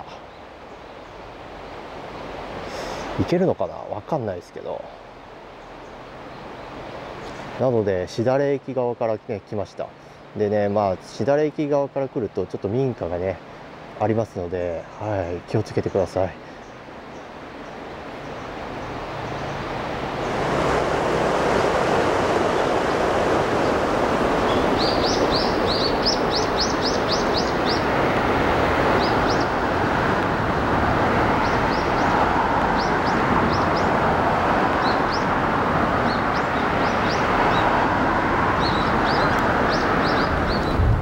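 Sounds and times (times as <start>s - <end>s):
small birds chirping: 14.8s - 20.3s, 24.4s - 28.0s, 28.9s - 29.6s, 31.4s - 32.2s, 32.8s - 34.0s, 34.7s - 35.3s, 36.0s - 37.7s, 38.6s - 40.9s
steady rushing noise: 16.8s - 41.0s.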